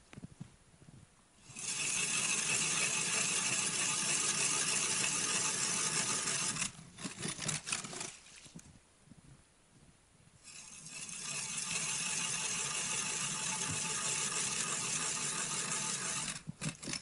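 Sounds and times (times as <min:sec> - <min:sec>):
ice auger grinding: 0:01.4 - 0:08.3, 0:10.5 - 0:17.0
short scrapes: 0:01.4 - 0:08.7, 0:10.5 - 0:17.0.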